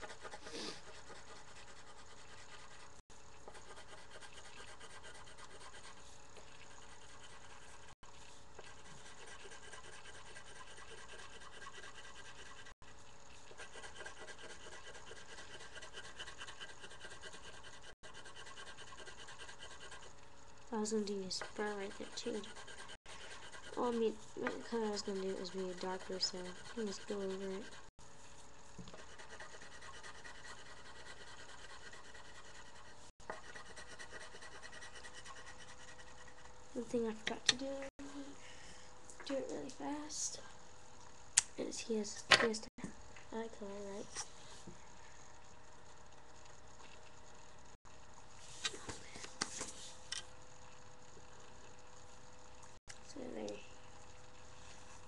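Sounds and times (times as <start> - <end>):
pencil scratching on paper: 0.0 - 20.1, 21.3 - 27.9, 28.9 - 36.5.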